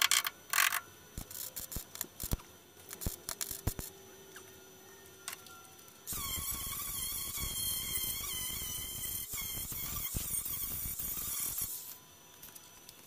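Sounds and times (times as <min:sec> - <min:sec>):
angle grinder grinding metal: 0:06.1 - 0:12.0.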